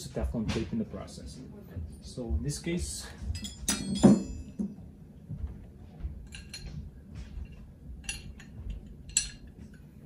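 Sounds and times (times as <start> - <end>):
low background hum: 0.0 - 10.0
metallic clinks of fittings and tools: 3.3 - 4.7, 7.4 - 9.9.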